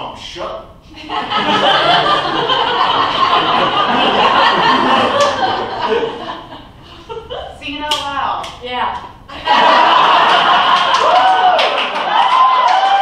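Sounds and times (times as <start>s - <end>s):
audience laughing: 1.0s - 7.5s, 9.3s - 11.2s.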